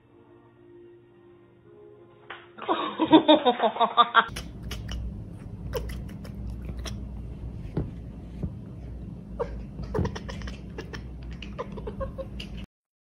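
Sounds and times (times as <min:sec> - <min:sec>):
cat chattering clicks and chirps: 0:04.3 - 0:05.1, 0:05.7 - 0:07.0, 0:09.8 - 0:12.7
steady low hum: 0:04.3 - 0:12.7.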